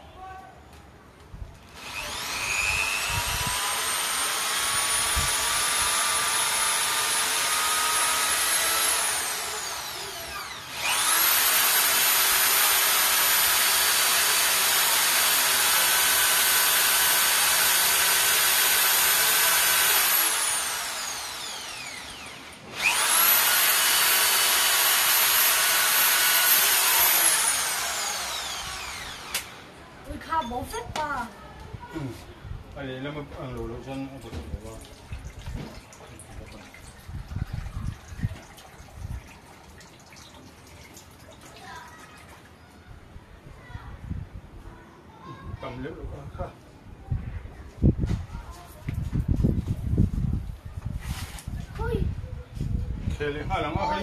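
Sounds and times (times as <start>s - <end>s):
electric drill whining: 1.7s - 29.8s.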